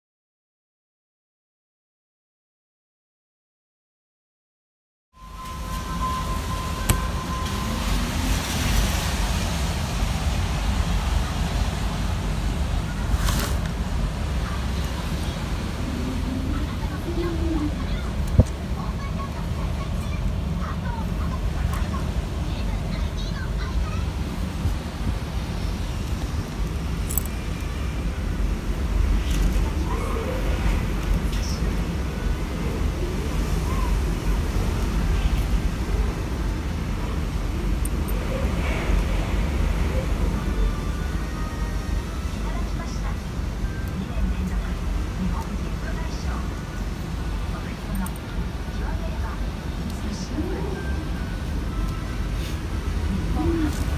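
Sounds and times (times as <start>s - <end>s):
wind howling through window gap: 5.2s - 53.9s
wind buffeting microphone: 5.5s - 49.9s
rustle: 13.1s - 13.7s.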